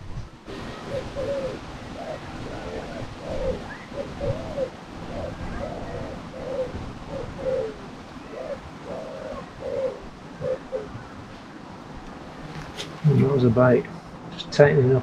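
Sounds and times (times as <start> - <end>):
pigeon cooing: 0.5 - 11.1.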